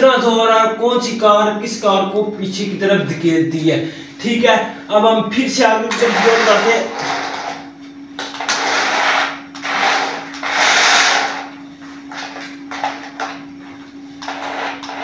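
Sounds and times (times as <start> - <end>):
steady low hum: 0.0 - 15.0
toy car motor and gears whirring: 8.4 - 11.4.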